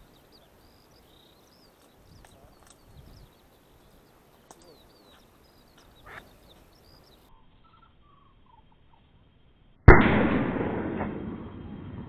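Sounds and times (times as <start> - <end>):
faint bird calls: 0.0 - 9.2
shotgun shot with echo: 9.9 - 12.0.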